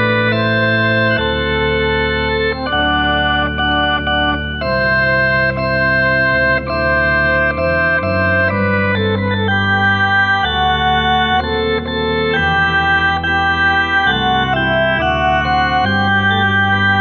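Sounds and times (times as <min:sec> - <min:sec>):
electronic organ chords: 0:00.0 - 0:17.0.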